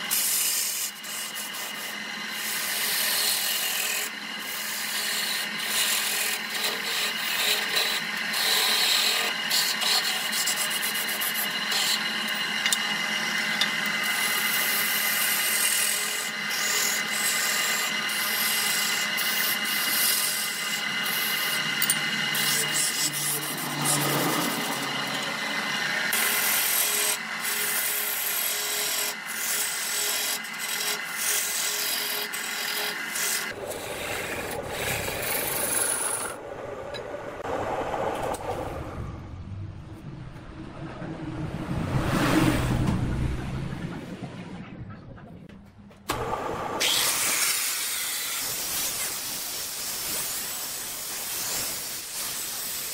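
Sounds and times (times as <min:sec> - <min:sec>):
tool scraping wood on lathe: 0:00.0 - 0:37.0
lathe motor whine: 0:00.0 - 0:39.2.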